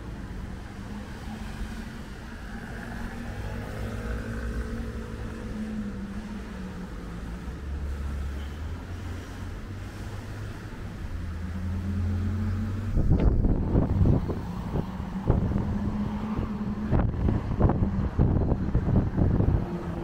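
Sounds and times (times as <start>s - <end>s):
car and truck engines passing: 0.0s - 20.0s
wind buffeting microphone: 12.5s - 20.0s.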